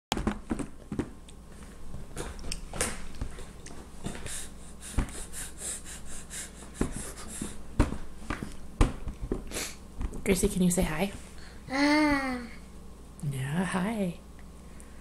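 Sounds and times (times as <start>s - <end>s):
baby snorting and huffing: 4.1s - 7.7s, 9.5s - 9.8s.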